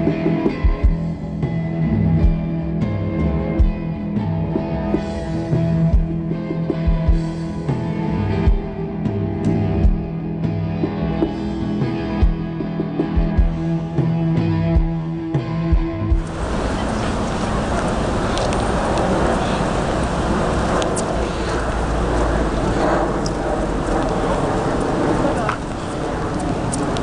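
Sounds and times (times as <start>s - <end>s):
live rock band: 0.0s - 16.3s
electric guitar: 0.0s - 27.0s.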